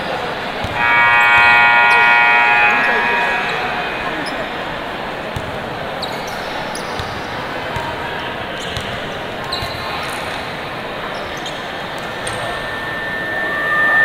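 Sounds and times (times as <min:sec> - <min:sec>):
echoing voices: 0:00.7 - 0:06.0, 0:10.4 - 0:14.0.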